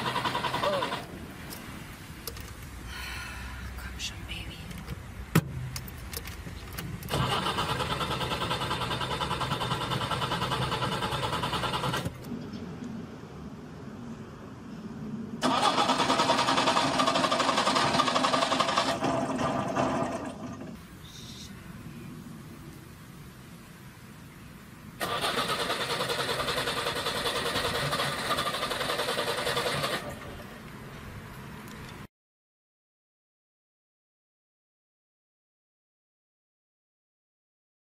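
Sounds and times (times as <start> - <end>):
car starter motor cranking: 0.0 - 1.1, 7.1 - 12.3, 15.4 - 20.7, 25.0 - 30.3
two-stroke engine running: 0.0 - 1.1, 7.1 - 12.2, 15.4 - 20.6, 25.0 - 30.2.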